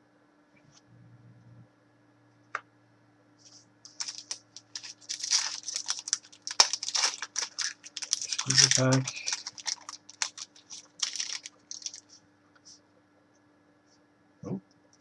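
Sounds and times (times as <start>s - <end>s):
foil wrapper crinkling: 3.9s - 12.1s.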